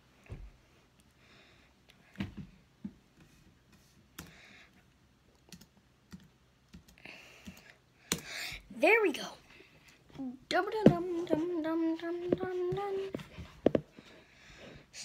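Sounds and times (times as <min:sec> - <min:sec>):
computer keyboard keys clicking: 0:05.5 - 0:07.6.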